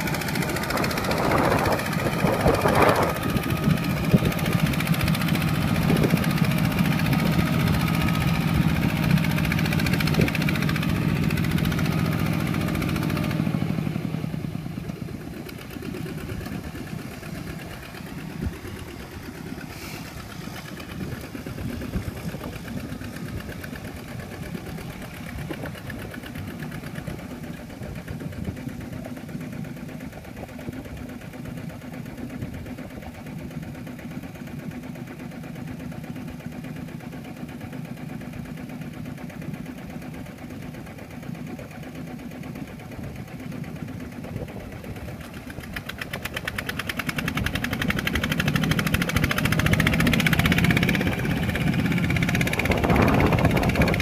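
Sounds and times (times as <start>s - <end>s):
diesel tractor engine chugging: 0.0s - 54.0s.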